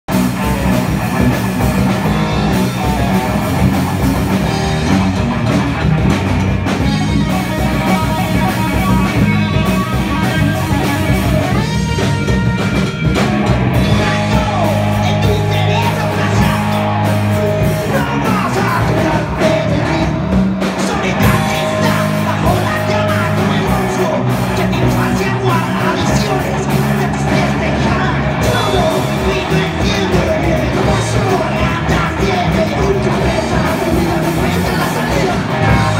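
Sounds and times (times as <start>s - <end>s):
bass guitar: 0.0s - 35.9s
drum kit: 0.0s - 35.9s
distorted electric guitar: 0.1s - 35.9s.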